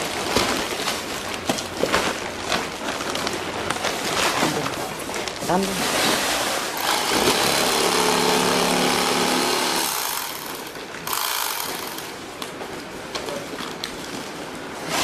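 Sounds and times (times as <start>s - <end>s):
sewing machine motor hum: 6.8s - 12.2s.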